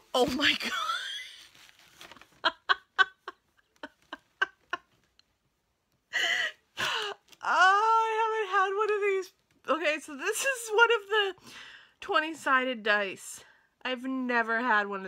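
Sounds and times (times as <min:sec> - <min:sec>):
woman laughing: 0:02.0 - 0:05.0.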